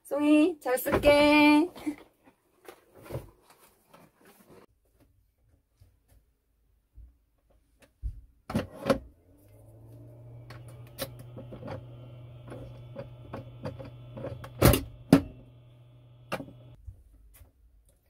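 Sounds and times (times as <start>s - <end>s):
espresso machine humming: 9.4s - 16.8s.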